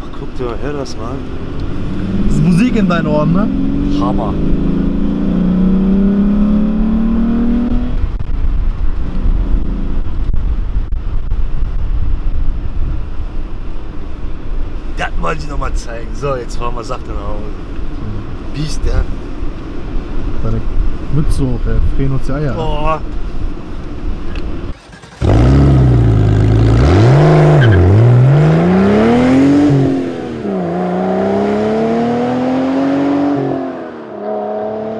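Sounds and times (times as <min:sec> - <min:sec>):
road noise: 0:00.0 - 0:34.9
car engine accelerating: 0:00.2 - 0:10.4, 0:24.4 - 0:34.9.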